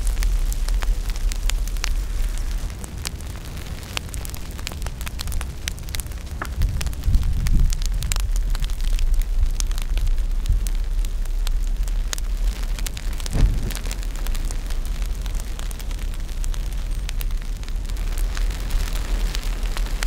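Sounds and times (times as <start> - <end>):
bonfire crackling and popping: 0.0 - 20.0
low rumble: 13.0 - 18.6
dull thump: 13.3 - 14.4.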